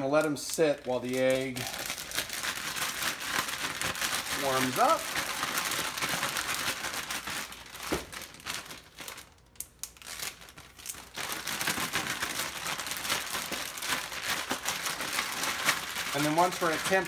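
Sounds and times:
plastic bags crinkling: 0.0 - 17.0.

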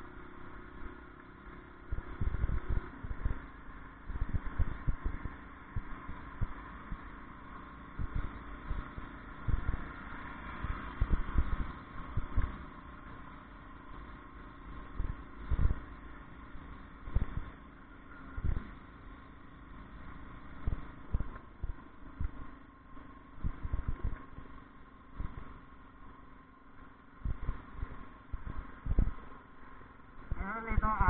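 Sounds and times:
motorcycle engine and road noise: 0.0 - 31.0
low thumps: 1.9 - 3.4, 8.0 - 9.8, 11.0 - 12.5, 17.0 - 17.6, 23.4 - 24.2, 25.2 - 25.6, 27.2 - 29.2.

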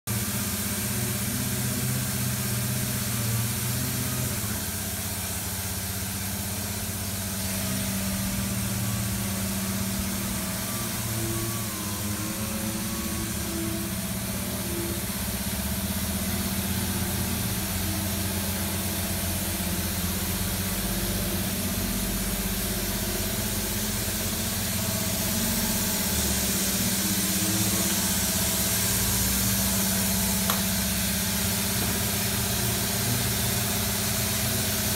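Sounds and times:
low mechanical hum: 0.1 - 34.9
steady hiss: 19.6 - 34.9.

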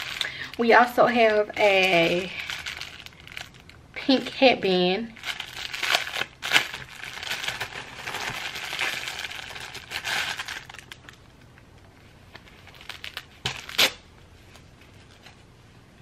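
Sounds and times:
plastic packaging crinkling: 0.0 - 11.6, 12.3 - 15.5.

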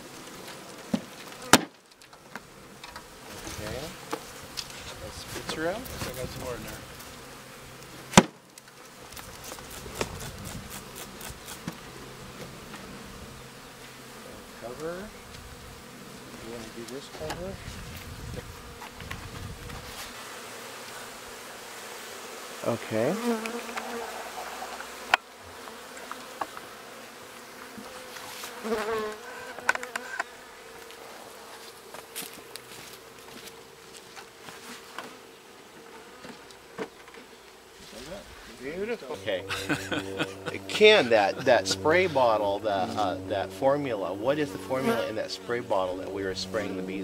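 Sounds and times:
bees buzzing: 0.0 - 47.0.

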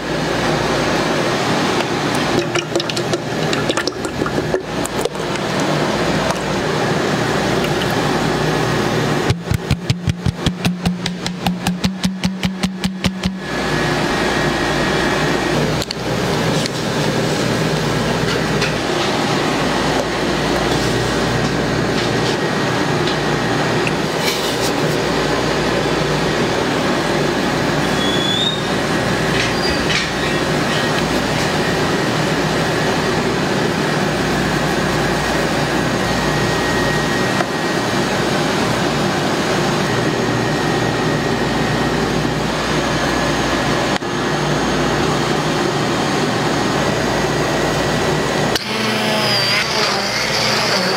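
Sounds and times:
steady machine noise: 0.0 - 28.0.

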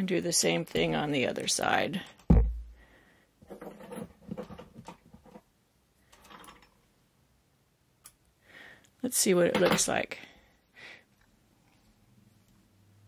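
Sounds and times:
low thump: 2.3 - 2.8.

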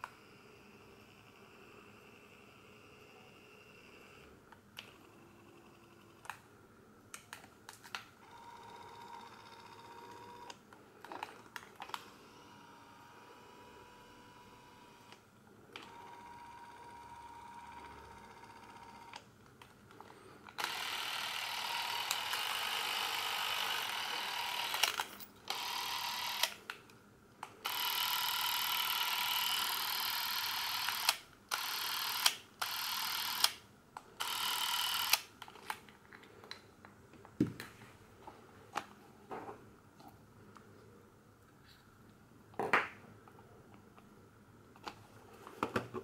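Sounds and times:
camera motor whirring: 8.2 - 15.2, 15.8 - 19.2, 20.5 - 26.6, 27.6 - 33.6, 34.2 - 35.7.

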